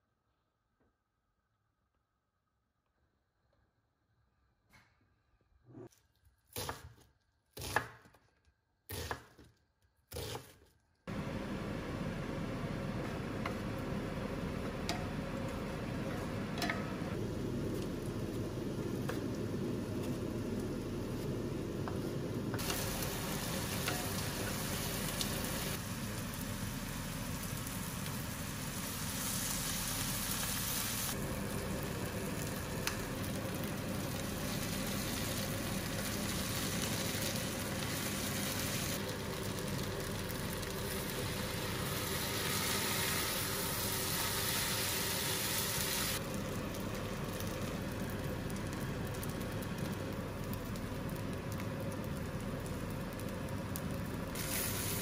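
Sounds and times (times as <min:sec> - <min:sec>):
food sizzling in skillet: 0:17.2 - 0:48.1, 0:54.3 - 0:55.0.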